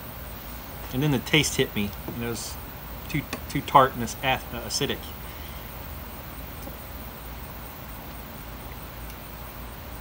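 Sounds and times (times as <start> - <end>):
low hum and hiss: 0.0 - 10.0.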